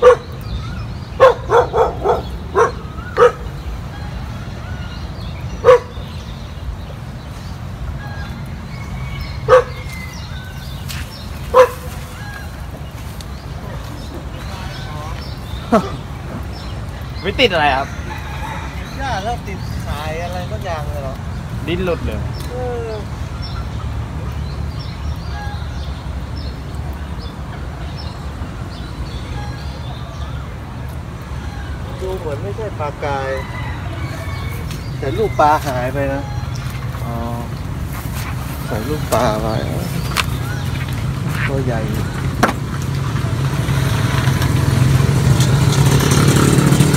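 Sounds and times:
dog barking: 0.0s - 0.3s, 1.2s - 3.5s, 5.6s - 6.0s, 9.5s - 9.8s, 11.5s - 11.9s
small birds chirping: 0.0s - 46.9s.

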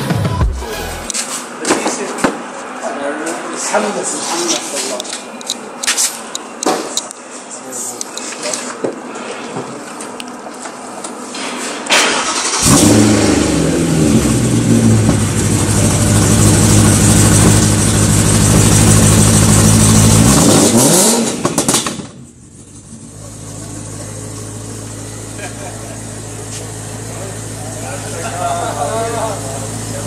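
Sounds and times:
starter cranking engine: 12.2s - 13.3s
car engine idling: 12.3s - 30.0s.

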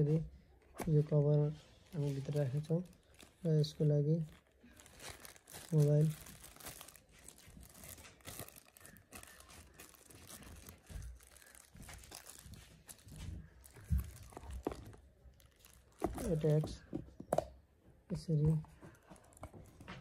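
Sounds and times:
plastic packaging crinkling: 0.8s - 16.9s, 18.8s - 20.0s.

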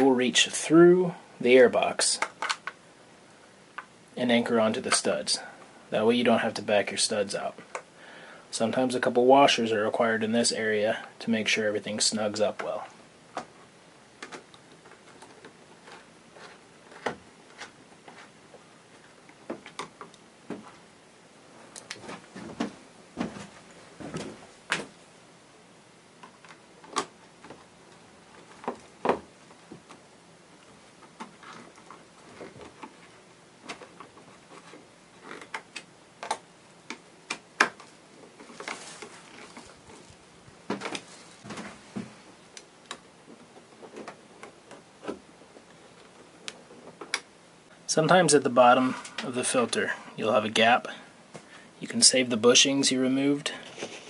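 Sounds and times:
plastic parts being handled: 12.4s - 20.8s, 26.2s - 47.3s.

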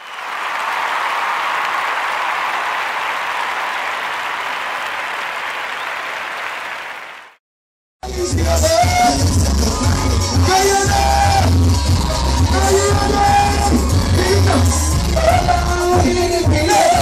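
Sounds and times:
audience applause: 0.0s - 7.4s.

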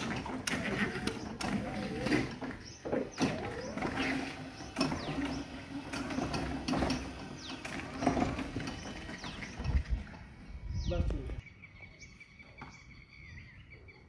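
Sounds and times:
machine rattles and knocks: 0.0s - 10.4s
electric forklift motor hum: 0.0s - 11.4s.

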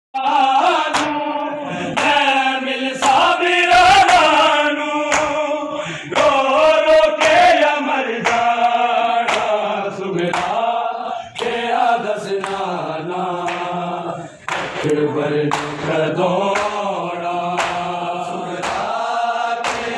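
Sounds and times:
man reciting into a microphone: 0.2s - 19.9s
men chanting a lament: 0.2s - 19.9s
hands slapping chests: 0.9s - 2.3s, 5.1s - 5.4s, 7.2s - 7.6s, 8.2s - 9.6s, 10.2s - 10.7s, 12.4s - 12.7s, 13.4s - 13.8s, 14.4s - 16.9s, 17.5s - 18.0s, 18.6s - 19.0s, 19.6s - 19.9s.

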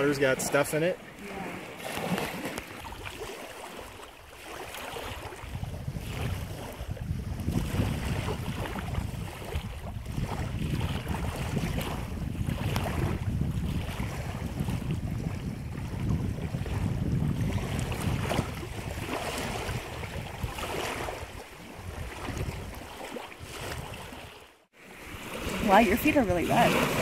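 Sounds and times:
wind buffeting microphone: 0.0s - 24.4s, 25.0s - 27.0s
water lapping: 0.0s - 27.0s.

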